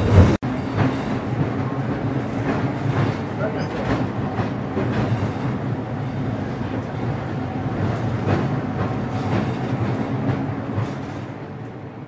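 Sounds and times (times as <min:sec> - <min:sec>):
clacks over rail joints: 0:00.0 - 0:05.6, 0:07.8 - 0:11.8
train wheels rumbling: 0:00.0 - 0:12.0.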